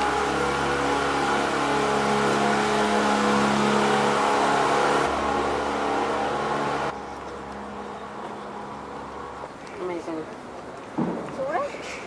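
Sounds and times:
boat motor running: 0:00.0 - 0:09.5.

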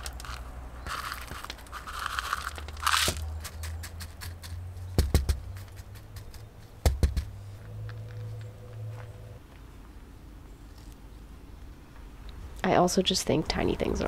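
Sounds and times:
gravel pebbles clicking: 0:00.0 - 0:09.6
double knocks: 0:04.9 - 0:07.4.

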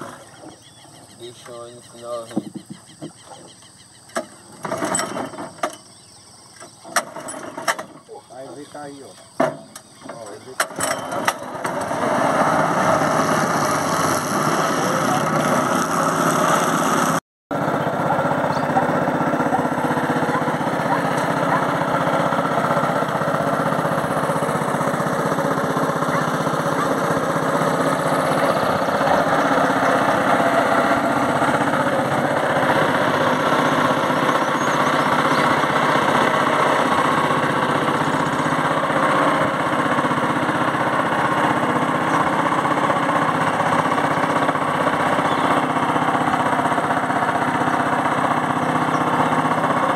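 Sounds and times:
small boat motor running: 0:00.0 - 0:49.9.

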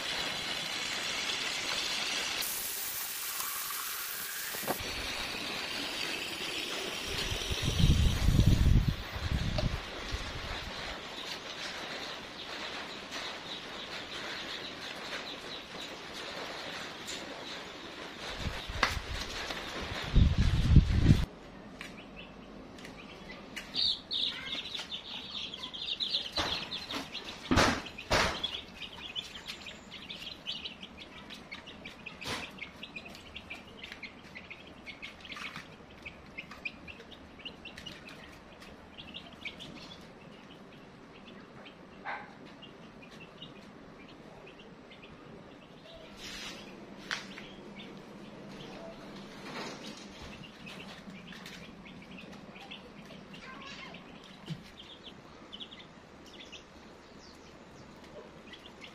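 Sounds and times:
baby chicks peeping: 0:06.0 - 0:58.9
sharp knocks: 0:26.3 - 0:28.6.

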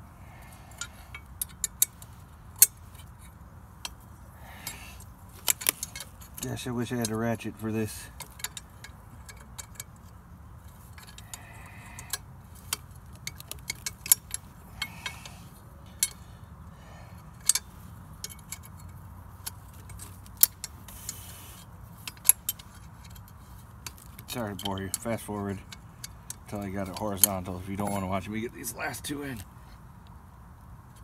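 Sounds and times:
wrench clicking on bolts: 0:03.8 - 0:16.2, 0:16.8 - 0:28.1.

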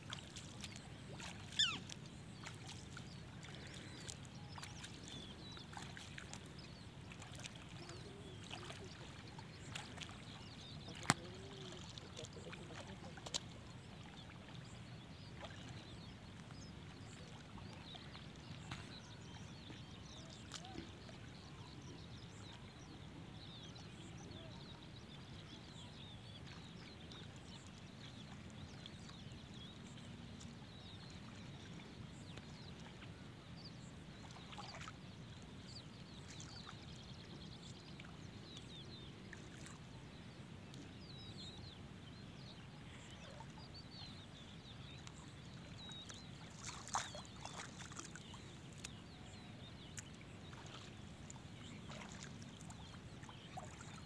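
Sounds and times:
legs wading through water: 0:00.0 - 0:54.0
high bird calls: 0:01.5 - 0:01.9.

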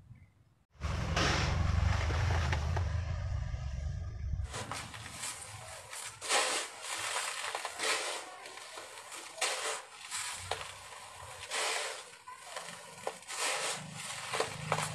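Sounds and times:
hands sifting gritty concrete mix: 0:04.5 - 0:14.9.

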